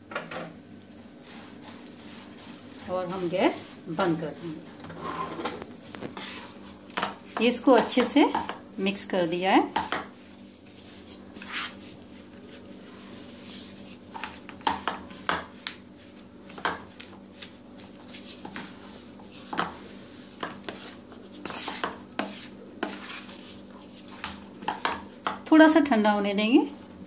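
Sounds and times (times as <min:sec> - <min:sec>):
wooden spatula scraping frying pan: 0:00.9 - 0:08.6, 0:10.7 - 0:12.0, 0:18.1 - 0:25.4.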